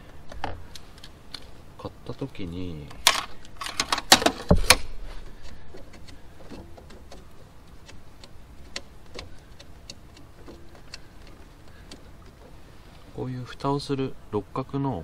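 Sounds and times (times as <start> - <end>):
hands handling small parts: 2.8 - 13.2.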